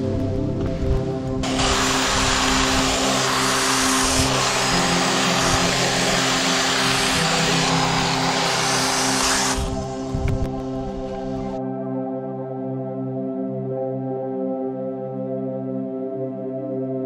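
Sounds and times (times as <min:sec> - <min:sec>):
background music: 0:00.0 - 0:17.0
chainsaw cutting wood: 0:01.4 - 0:10.4.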